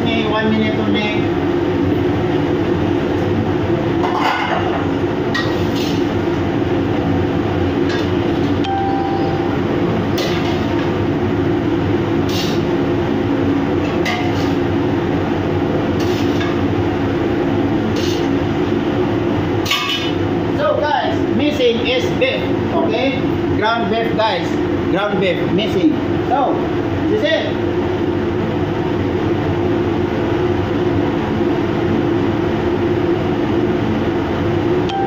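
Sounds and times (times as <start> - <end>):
ship machinery humming: 6.2 - 13.9.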